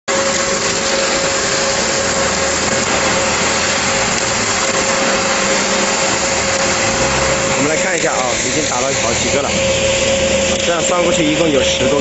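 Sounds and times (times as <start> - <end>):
concrete pump machine noise: 0.1 - 12.0
constant machine whine: 0.1 - 12.0.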